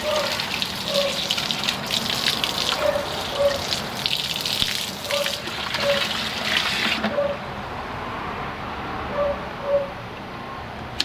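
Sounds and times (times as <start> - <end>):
water splashing and sloshing: 0.0 - 7.2.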